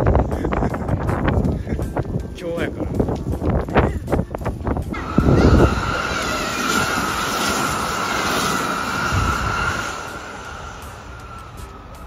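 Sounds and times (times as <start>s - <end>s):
electric train passing: 4.9s - 12.0s
train high whine: 4.9s - 12.0s.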